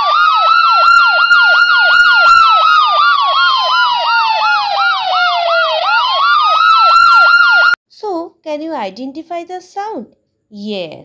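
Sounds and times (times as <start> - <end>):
ambulance siren wail: 0.0 - 7.8
ambulance siren yelp: 0.0 - 7.8.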